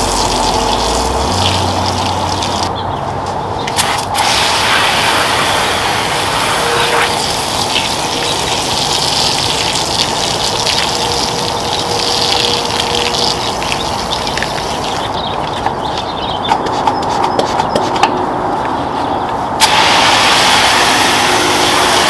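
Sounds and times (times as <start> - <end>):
foam sprayer hissing: 0.0 - 2.7, 3.8 - 15.1, 19.6 - 22.0.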